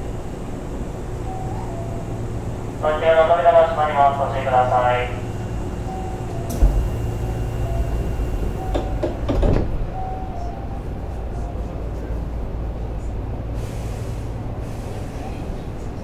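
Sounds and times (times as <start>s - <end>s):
train car low hum: 0.0s - 16.0s
sliding doors thudding shut: 8.4s - 9.9s.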